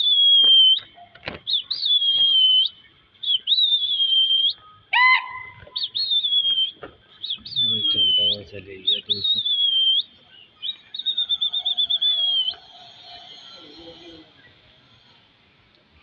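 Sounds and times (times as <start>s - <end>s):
person whistling shrilly: 0.0s - 10.1s, 10.7s - 14.2s.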